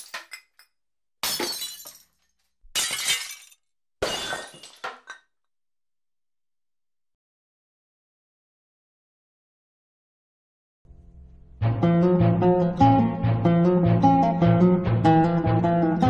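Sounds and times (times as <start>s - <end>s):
glass shattering: 0.0s - 5.3s.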